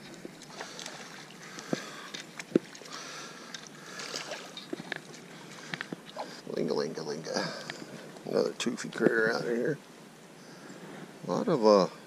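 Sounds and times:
water splashing: 0.0s - 6.5s.

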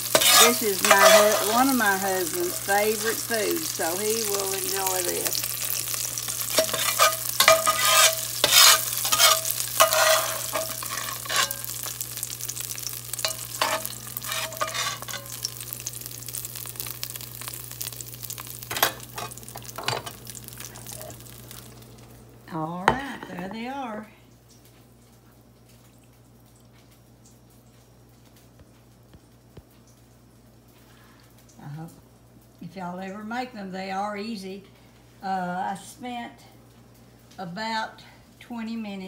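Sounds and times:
spatula scraping skillet: 0.0s - 17.0s, 17.8s - 21.3s
tomatoes sizzling in grease: 0.0s - 39.0s.

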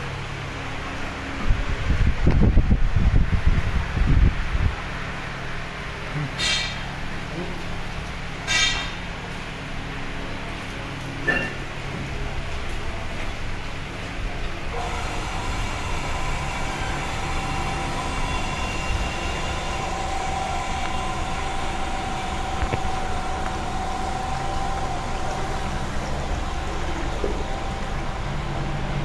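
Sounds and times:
steady motor whine: 12.2s - 29.0s
stirrer tank motor humming: 14.5s - 29.0s.

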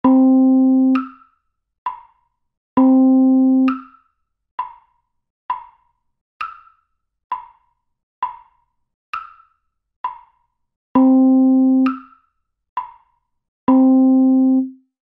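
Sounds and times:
metronome clicking: 0.8s - 1.2s, 3.6s - 4.0s, 11.0s - 12.2s.

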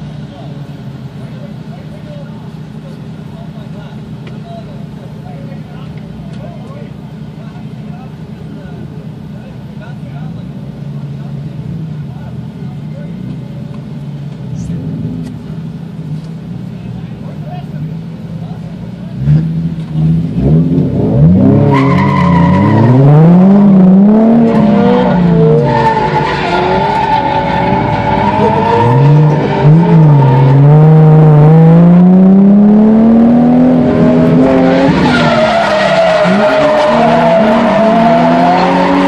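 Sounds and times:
car engine revving hard: 19.1s - 39.0s
tyres squealing: 21.7s - 23.8s, 34.3s - 39.0s.

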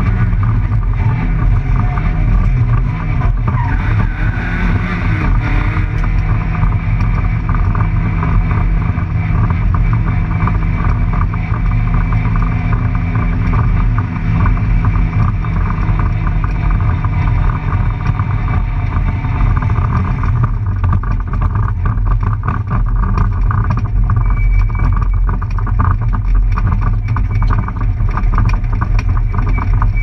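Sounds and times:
rally car engine and tyre noise: 0.0s - 30.0s
car body rattling: 5.3s - 30.0s.

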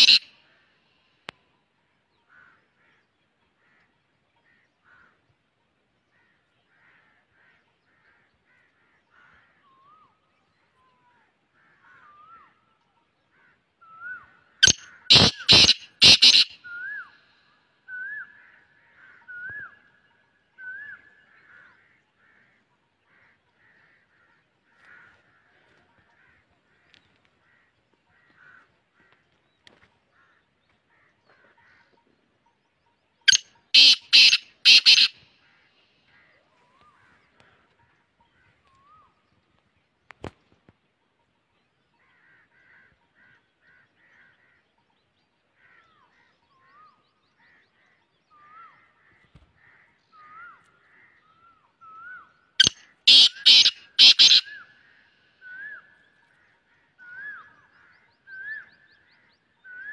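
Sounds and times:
francolin harsh calls: 0.0s - 0.6s, 14.0s - 17.3s, 33.3s - 35.7s, 52.0s - 55.7s
faint bird chirping: 0.0s - 59.9s.

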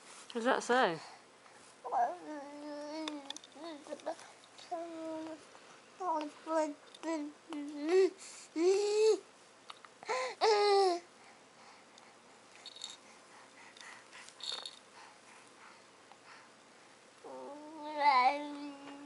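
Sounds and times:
baby babbling: 1.9s - 5.4s, 6.0s - 9.2s, 10.1s - 11.0s, 17.3s - 19.0s.

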